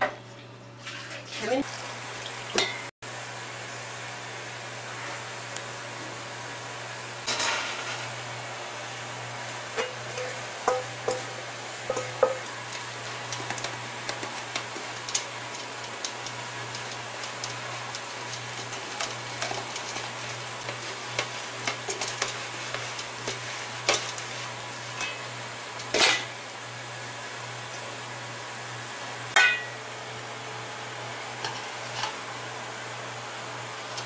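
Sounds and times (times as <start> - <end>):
flour rubbed through sieve: 16.6 - 24.9.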